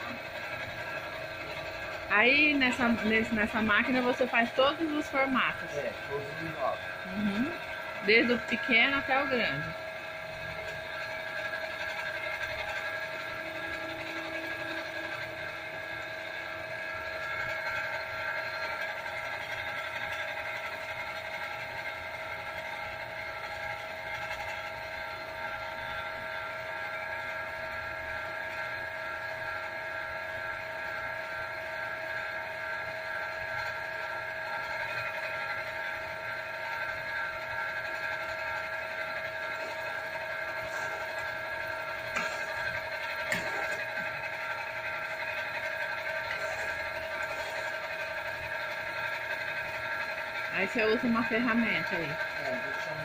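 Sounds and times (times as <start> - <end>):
potter's wheel motor humming: 0.0 - 53.0
steady motor whine: 0.0 - 53.0.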